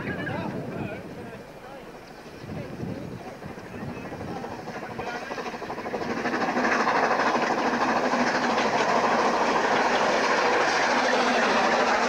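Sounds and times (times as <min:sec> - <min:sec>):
steam train running past: 0:01.3 - 0:12.0
steam hissing: 0:04.2 - 0:12.0.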